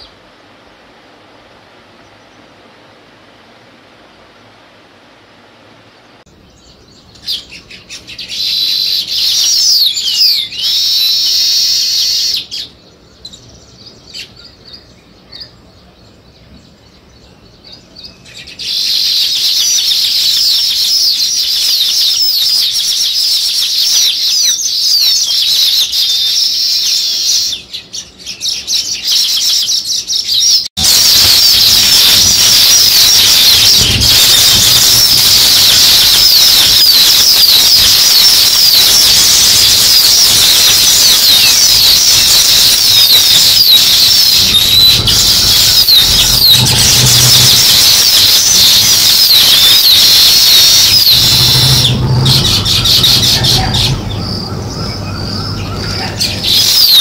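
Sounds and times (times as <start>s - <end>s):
birds twittering chorus: 5.9s - 57.0s
low rumble: 44.4s - 48.1s, 50.6s - 56.4s.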